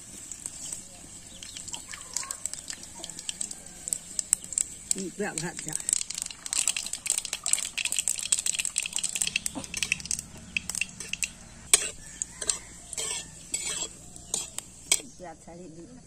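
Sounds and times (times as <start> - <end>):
mustard seeds crackling in oil: 0.0 - 15.5
steel spatula scraping pan: 8.7 - 15.2.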